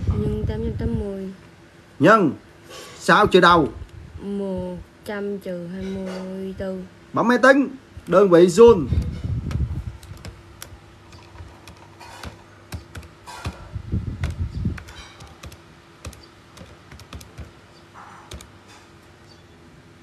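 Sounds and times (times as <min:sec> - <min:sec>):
low thumps: 0:08.6 - 0:10.4, 0:11.2 - 0:17.6
calculator buttons clicking: 0:09.5 - 0:18.6.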